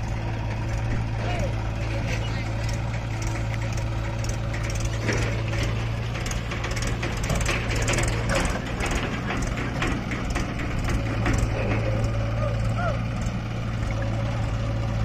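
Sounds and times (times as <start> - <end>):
diesel engines droning: 0.0 - 15.0
soil clattering into trailer: 2.0 - 12.3.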